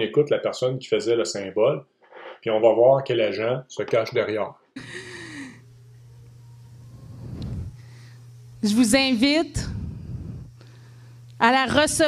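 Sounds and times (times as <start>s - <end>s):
low hum: 4.8s - 12.0s.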